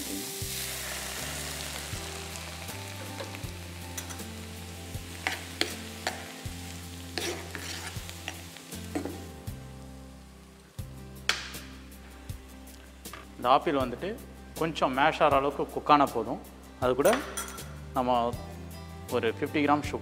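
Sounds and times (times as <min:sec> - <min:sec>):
apple sizzling in a frying pan: 0:00.0 - 0:13.0
spatula scraping a pan: 0:07.1 - 0:08.5.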